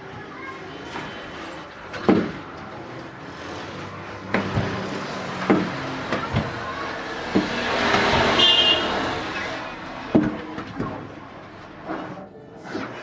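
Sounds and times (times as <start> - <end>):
street traffic passing: 0.0 - 12.9
car horn toot: 8.3 - 9.0.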